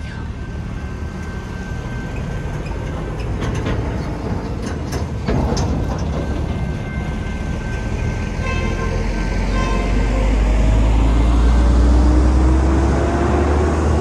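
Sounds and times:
crossing bells dinging: 0:00.0 - 0:11.6
truck clattering over rails: 0:02.5 - 0:07.2.

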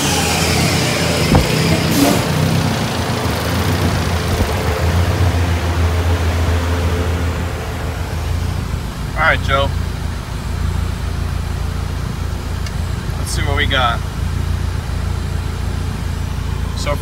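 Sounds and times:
car engine idling: 0:00.0 - 0:17.0
sharp knock: 0:01.3 - 0:02.4.

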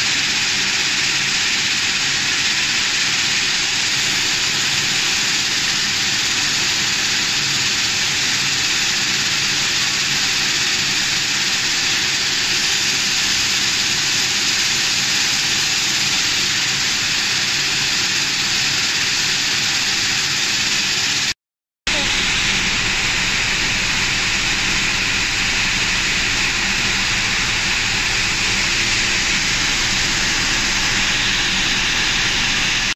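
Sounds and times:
coffee roaster fans: 0:00.0 - 0:32.9
low hum: 0:21.9 - 0:32.9.

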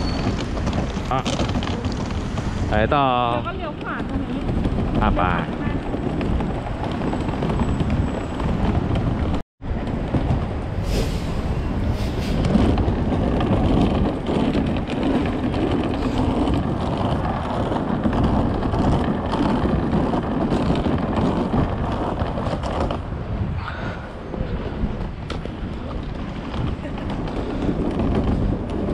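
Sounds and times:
traffic passing: 0:00.0 - 0:28.9
wind buffeting microphone: 0:00.0 - 0:28.9.

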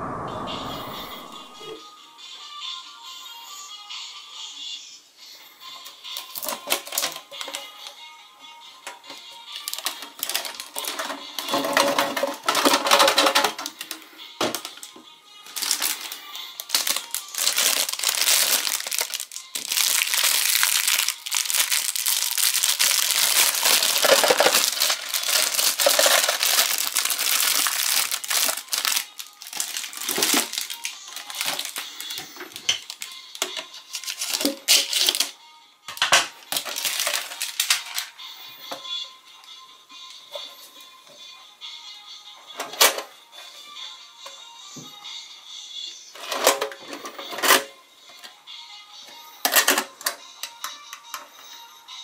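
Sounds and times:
background music: 0:00.0 - 0:52.0
cellophane crinkling: 0:09.5 - 0:14.0, 0:15.4 - 0:35.3, 0:36.5 - 0:38.1.

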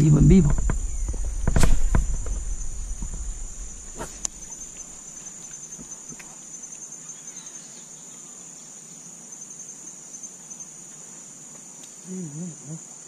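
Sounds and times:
sharp knocks: 0:00.0 - 0:04.5
low rumble: 0:00.0 - 0:05.0
insects chirring: 0:00.0 - 0:13.0.

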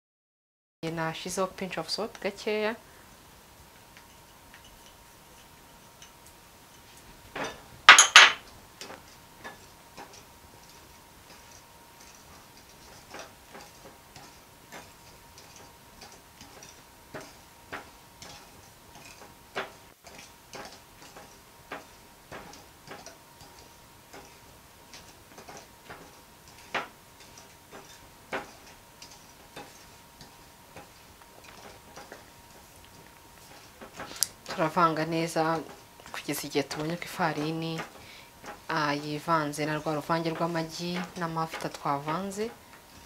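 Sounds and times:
wire whisk clinking in glass bowl: 0:07.9 - 0:08.4.

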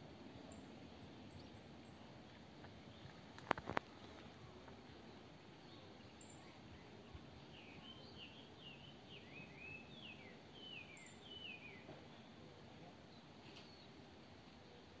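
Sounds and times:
outdoor background noise: 0:00.0 - 0:15.0
faint bird chirps: 0:05.0 - 0:15.0.

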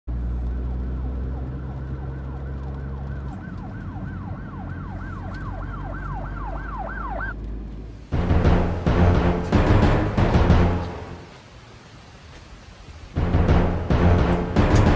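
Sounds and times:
car driving drone from inside: 0:00.1 - 0:09.4
electronic siren wailing: 0:00.4 - 0:07.4.

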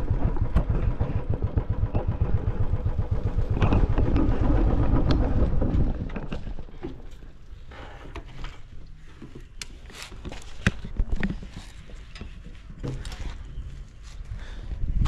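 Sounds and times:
motorbike engine running: 0:00.0 - 0:06.8
wind buffeting microphone: 0:00.0 - 0:07.2, 0:10.8 - 0:15.0.

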